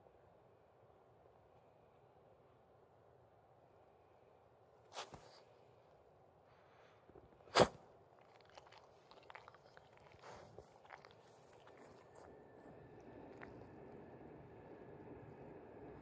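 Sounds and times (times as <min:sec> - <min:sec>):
dog snorting: 0:07.5 - 0:14.0
dog licking and mouth clicks: 0:08.2 - 0:14.1.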